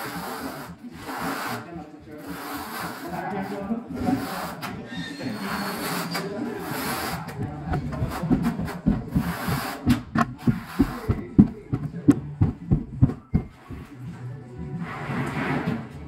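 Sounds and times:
dull thumps and knocks on concrete: 7.4 - 13.9.

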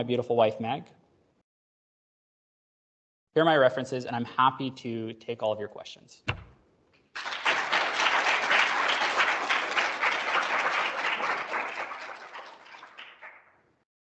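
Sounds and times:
audience applauding: 7.2 - 13.6.

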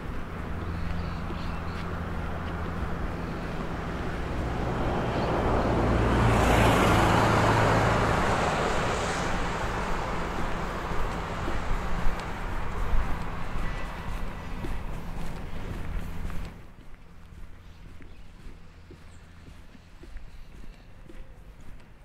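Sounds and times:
car driving past: 0.4 - 16.7.

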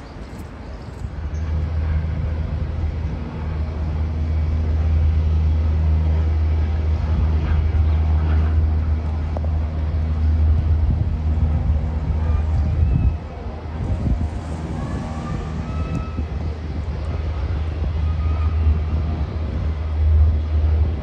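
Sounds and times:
aircraft engines rumbling: 0.0 - 21.0.

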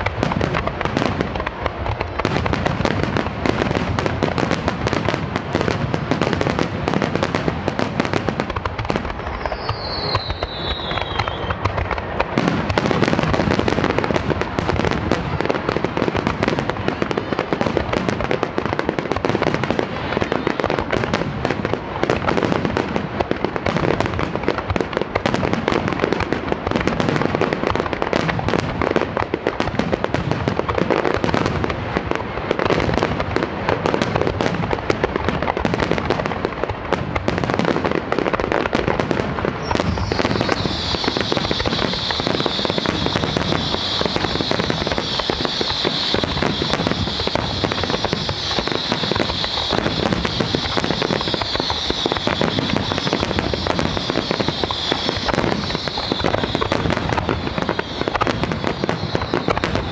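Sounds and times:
fireworks crackle: 0.0 - 59.9
fireworks launching and bursting: 0.0 - 59.9.

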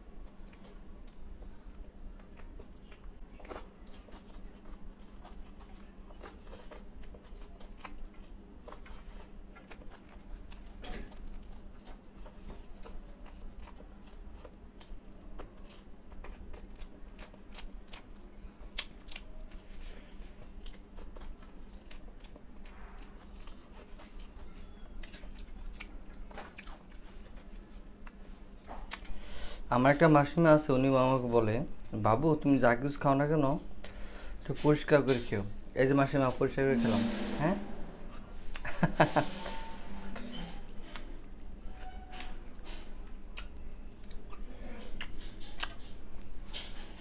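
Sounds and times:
person chewing and lip smacking: 0.1 - 29.2, 38.1 - 38.7, 40.2 - 47.0
low hum: 36.4 - 41.9.

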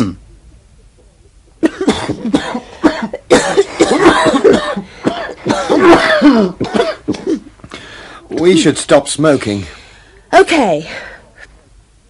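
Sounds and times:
throat clearing: 0.0 - 0.2
person coughing: 1.6 - 7.5.

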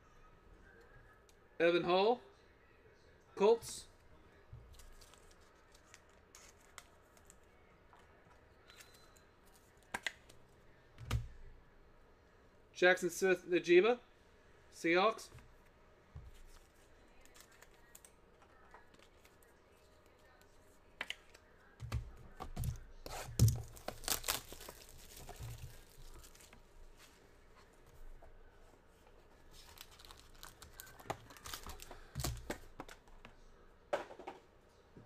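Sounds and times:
cardboard tearing and crinkling: 23.1 - 26.6, 29.6 - 32.4.

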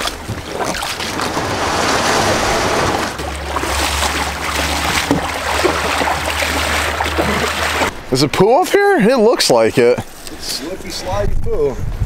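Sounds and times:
boots splashing through shallow water: 0.0 - 7.9
low steady rumble: 0.0 - 8.3.

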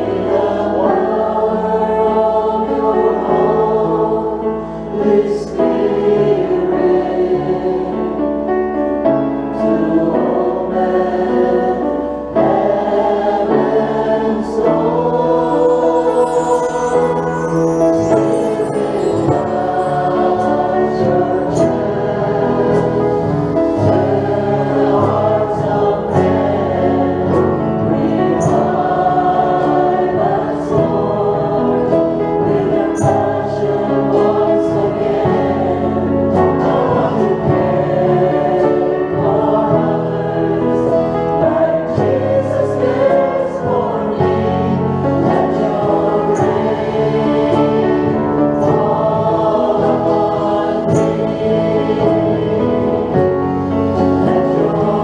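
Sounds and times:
choir singing in harmony: 0.0 - 55.0
instrumental accompaniment: 13.6 - 55.0.

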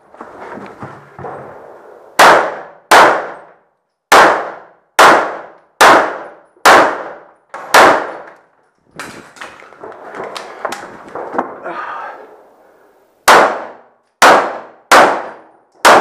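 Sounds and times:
handgun shots echoing: 2.2 - 11.6, 13.3 - 16.0.

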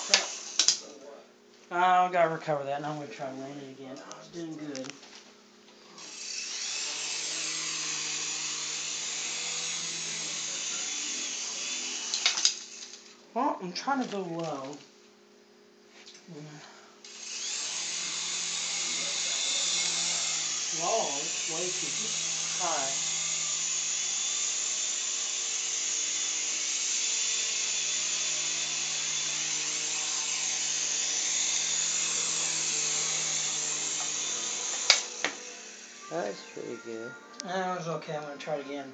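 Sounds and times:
toy helicopter motor whirring: 0.0 - 0.9, 6.0 - 13.1, 16.4 - 37.0.

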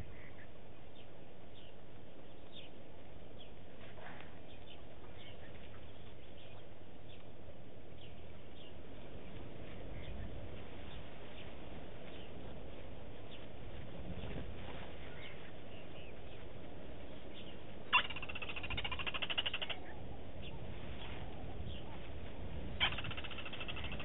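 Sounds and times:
birds chirping: 0.0 - 24.0
outdoor background hiss: 0.0 - 24.0.

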